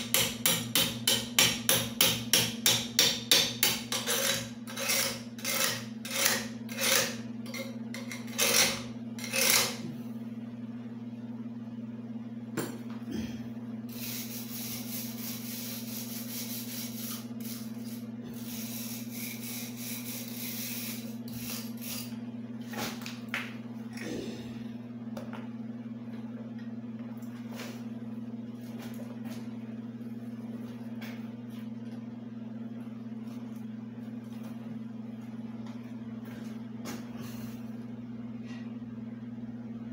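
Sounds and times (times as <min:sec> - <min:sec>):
electrical hum: 0:00.0 - 0:39.9.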